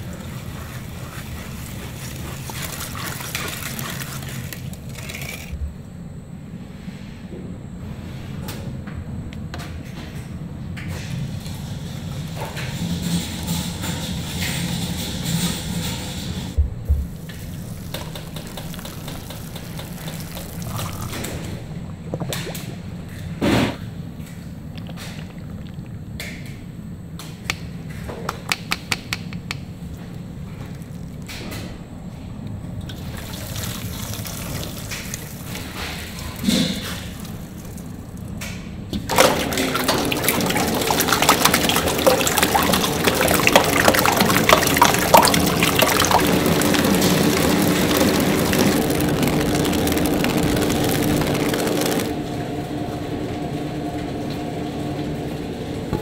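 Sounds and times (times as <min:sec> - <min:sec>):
steady machine hum: 0:00.0 - 0:56.0
steady mechanical tones: 0:29.6 - 0:53.9
loud rushing liquid noise: 0:39.1 - 0:52.3.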